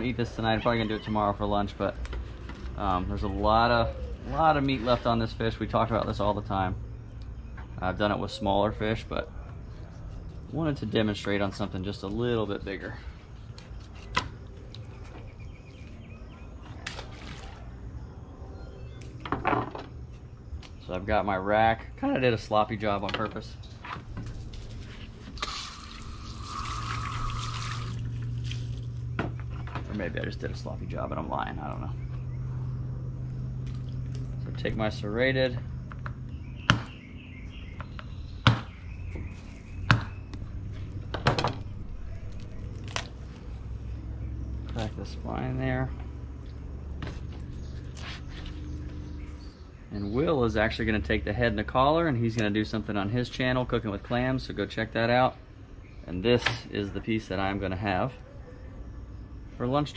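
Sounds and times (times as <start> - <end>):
steady low rumble: 27.3 - 49.9.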